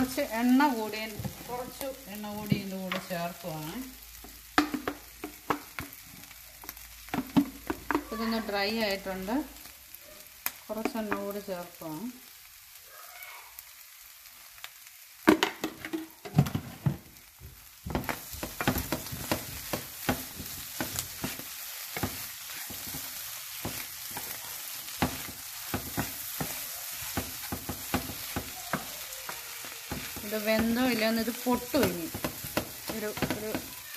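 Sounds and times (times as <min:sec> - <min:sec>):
spatula knocking and scraping pan: 0:00.0 - 0:03.2, 0:04.2 - 0:06.0, 0:07.1 - 0:08.5, 0:10.8 - 0:11.4, 0:15.3 - 0:33.8
clam meat sizzling in a pan: 0:00.0 - 0:33.9.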